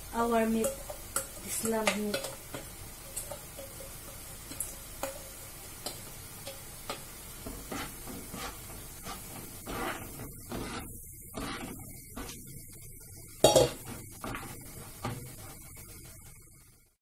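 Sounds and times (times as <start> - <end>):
low sizzle of cooking: 0.0 - 17.0
spatula stirring in pan: 0.0 - 17.0
spatula scraping steel bowl: 7.5 - 12.4.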